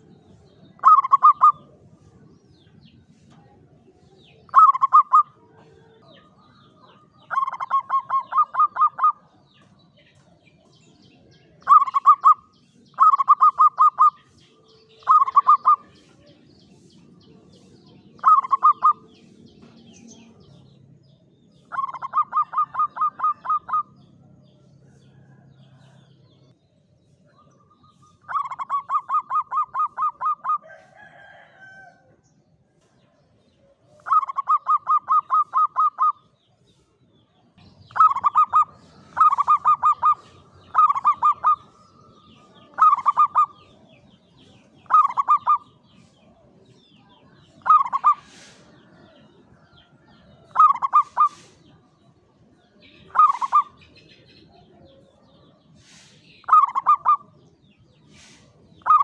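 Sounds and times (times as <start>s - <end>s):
dove cooing: 0.8s - 1.8s, 4.5s - 9.3s, 11.6s - 14.2s, 14.9s - 15.9s, 18.2s - 19.1s, 21.6s - 24.0s, 28.3s - 30.6s, 33.8s - 36.2s, 37.9s - 43.7s, 44.8s - 45.7s, 47.4s - 49.0s, 50.5s - 51.7s, 53.1s - 54.0s, 56.0s - 57.3s, 58.2s - 59.0s.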